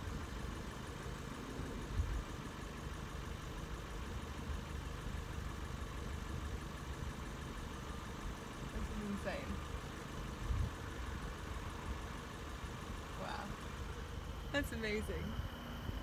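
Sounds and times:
car engine idling: 0:00.0 - 0:16.0.

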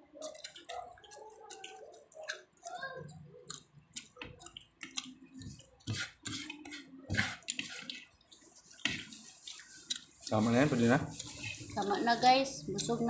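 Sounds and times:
wet chewing smacks: 0:00.2 - 0:10.5
fingers picking food from plate: 0:00.2 - 0:11.8.

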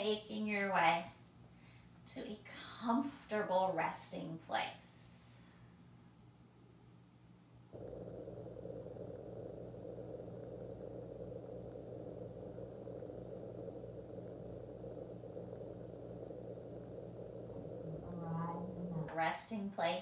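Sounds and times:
low electrical hum: 0:00.0 - 0:20.0
machine whirring: 0:07.7 - 0:19.5.

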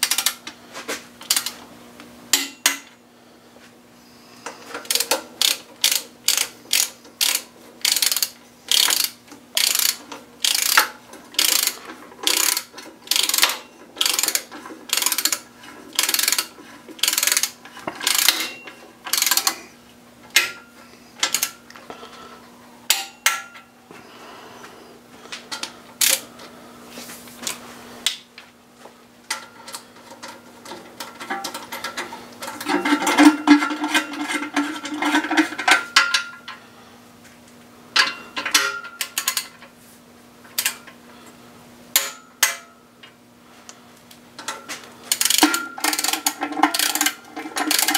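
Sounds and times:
hand ratchet buzzing: 0:00.0 - 0:00.5, 0:01.2 - 0:01.6, 0:04.4 - 0:20.6, 0:21.2 - 0:21.6, 0:26.0 - 0:26.3, 0:45.1 - 0:47.9
faint steady hum: 0:00.0 - 0:47.9.

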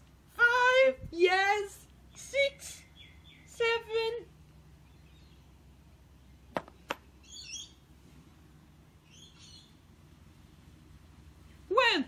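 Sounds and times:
bird chirping: 0:02.0 - 0:04.0, 0:04.7 - 0:07.9, 0:08.9 - 0:09.8.

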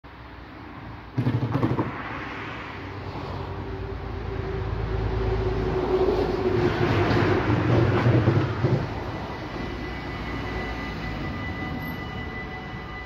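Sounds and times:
vehicle engine hum: 0:00.1 - 0:13.0
loud burst with knocks: 0:01.1 - 0:02.3.

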